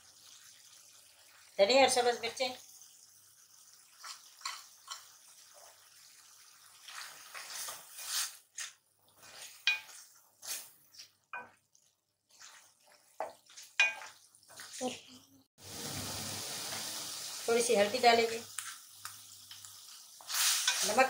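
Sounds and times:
wooden spatula scraping metal pan: 20.2 - 21.0.

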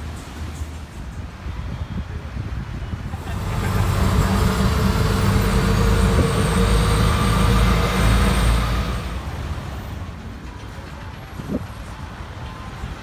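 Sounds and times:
road and traffic noise: 0.0 - 13.0
auto-rickshaw engine rumbling: 2.6 - 13.0.

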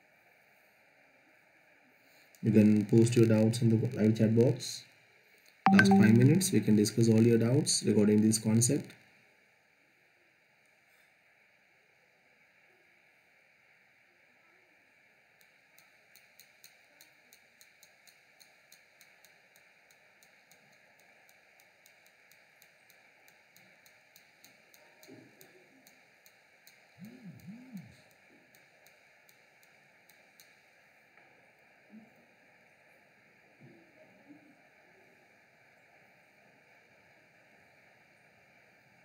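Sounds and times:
faint irregular clicking: 15.4 - 31.3
low vocal hum: 27.0 - 28.1.

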